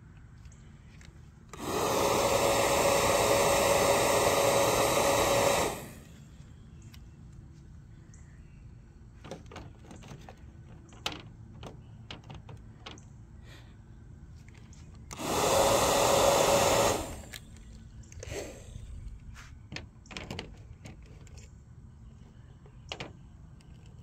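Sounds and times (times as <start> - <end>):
fan motor whirring: 0.4 - 7.0, 14.3 - 24.0.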